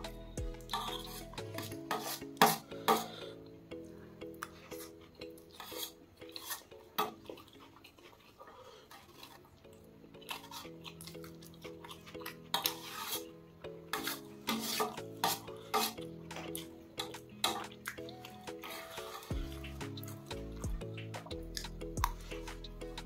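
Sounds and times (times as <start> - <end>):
soft background music: 0.0 - 23.0
metal spoon scraping a plate: 0.7 - 3.2, 4.7 - 6.7, 12.0 - 13.3, 13.9 - 17.7.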